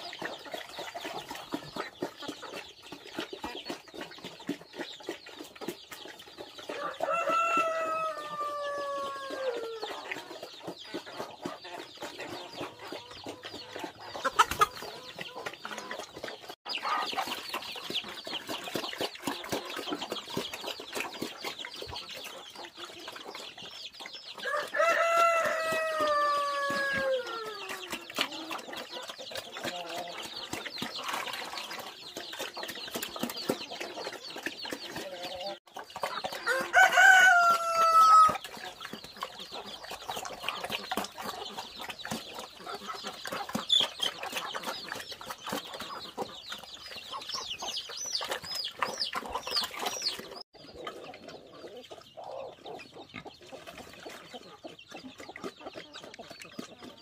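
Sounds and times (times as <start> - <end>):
hens and chicks clucking: 0.0 - 57.0
rooster crowing: 6.8 - 9.7, 24.4 - 27.3, 36.5 - 38.4.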